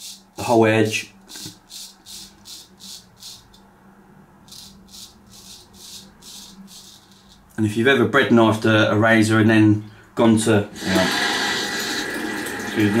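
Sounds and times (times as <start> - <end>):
straight razor scraping stubble: 4.5 - 7.6.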